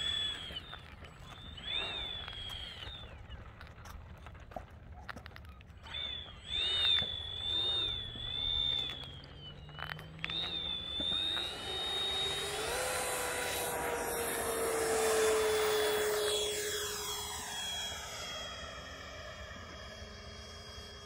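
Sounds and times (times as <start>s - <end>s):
electric ducted fan whine: 0.0s - 3.1s, 5.8s - 21.0s.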